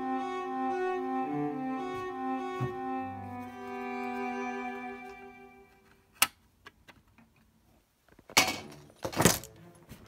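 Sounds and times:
string music: 0:00.0 - 0:06.2, 0:08.7 - 0:10.0.

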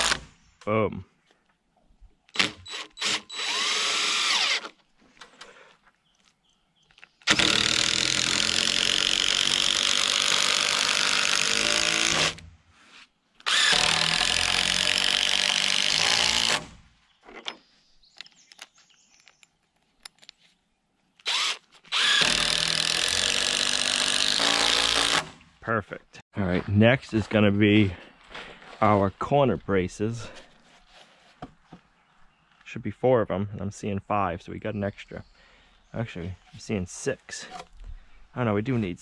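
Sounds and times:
cordless drill into timber: 0:00.0 - 0:00.3, 0:02.3 - 0:04.8, 0:07.2 - 0:12.5, 0:13.4 - 0:16.9, 0:21.2 - 0:25.4.

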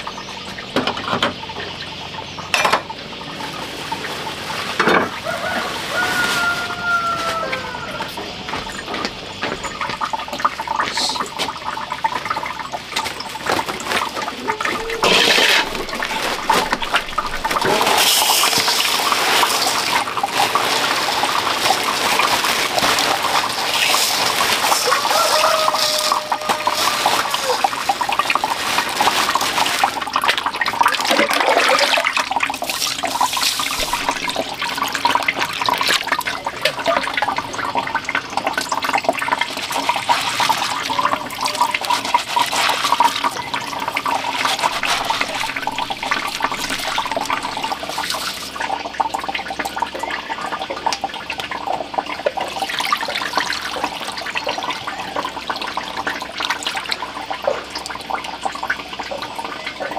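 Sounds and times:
water sloshing and splashing: 0:00.0 - 0:59.9
rice grains swishing in water: 0:13.7 - 0:36.1, 0:39.4 - 0:48.6.

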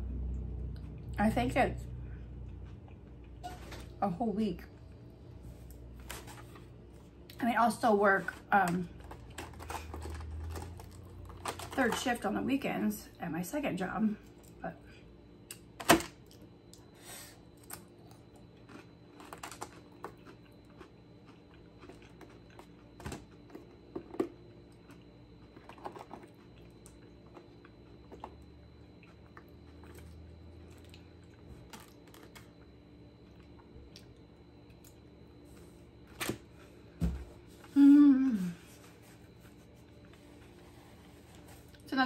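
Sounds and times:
quiet chewing: 0:17.6 - 0:32.6.

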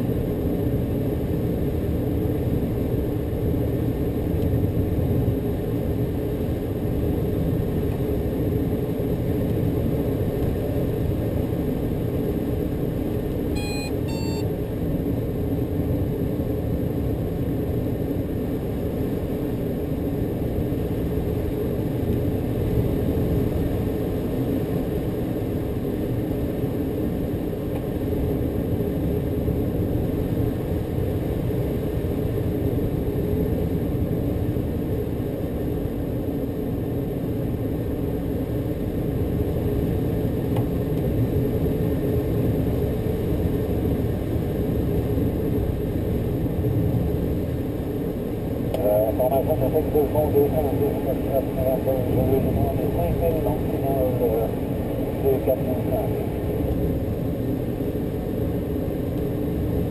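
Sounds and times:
short electronic beeps: 0:13.6 - 0:14.5.

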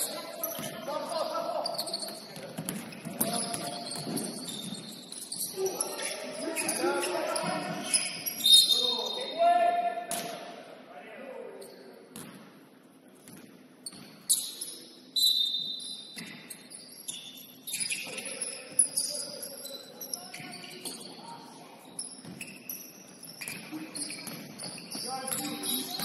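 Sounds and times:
sneakers squeaking on wooden floor: 0:00.0 - 0:09.3, 0:13.4 - 0:26.0
basketball bouncing: 0:02.4 - 0:04.4.

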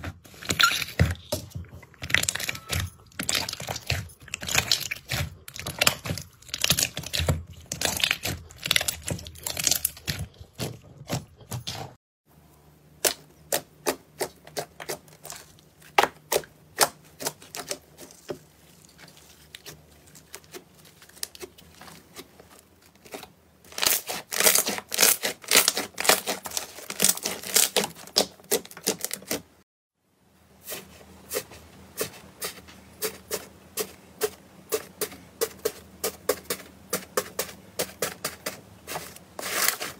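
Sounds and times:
slime popping and crackling: 0:02.0 - 0:10.7.

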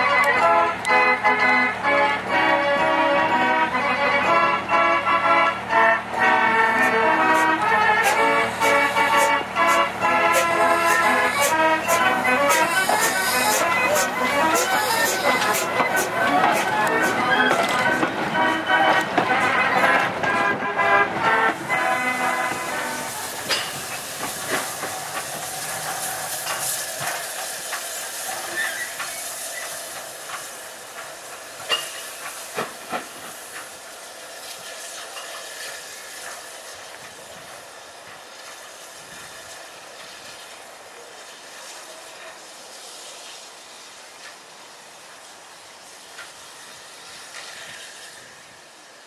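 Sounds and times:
steam hissing: 0:01.9 - 0:49.0
wheels clanking over rail joints: 0:05.7 - 0:40.5.

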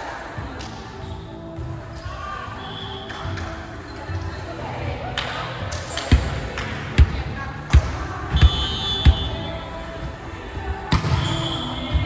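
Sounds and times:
background music: 0:00.0 - 0:12.0
volleyball slaps echoing: 0:05.2 - 0:09.4, 0:10.9 - 0:11.4.

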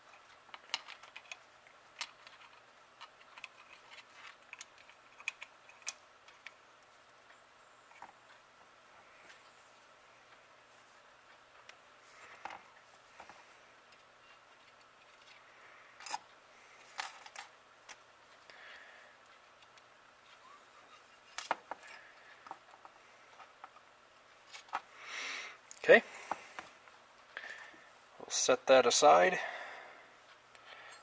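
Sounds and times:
small metal parts clicking: 0:00.2 - 0:01.4, 0:02.0 - 0:06.5, 0:16.0 - 0:16.3.

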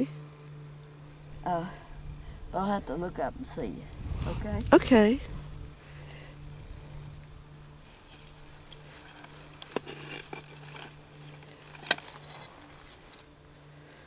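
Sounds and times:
rustling of artificial flowers: 0:07.7 - 0:14.0.

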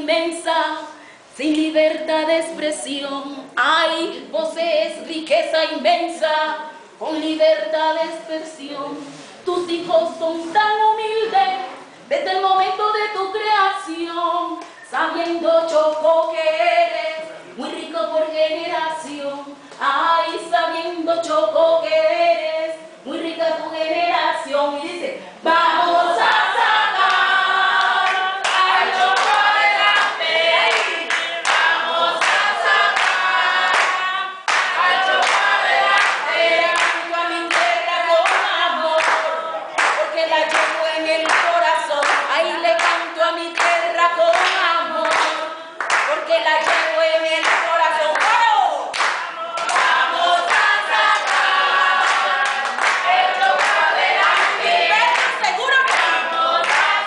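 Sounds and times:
woman singing: 0:00.0 - 0:30.9, 0:32.2 - 0:51.4, 0:52.0 - 0:57.0
voices singing along: 0:12.6 - 0:57.0
hand clapping: 0:28.0 - 0:43.0, 0:43.6 - 0:57.0.

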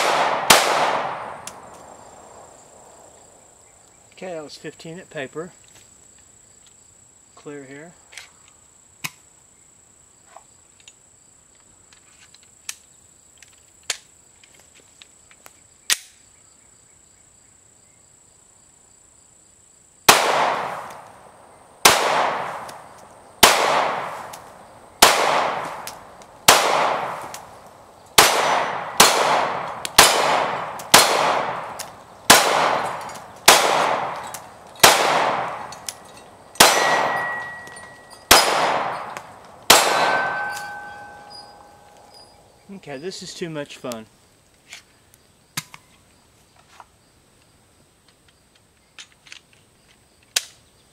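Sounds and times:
pistol shots with echoing tail: 0:00.0 - 0:01.7, 0:20.1 - 0:27.5, 0:28.2 - 0:36.0, 0:36.6 - 0:42.0.

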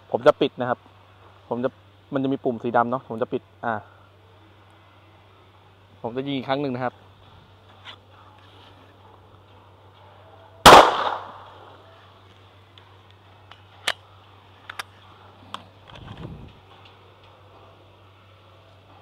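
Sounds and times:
pistol shot with echo: 0:10.6 - 0:11.6.

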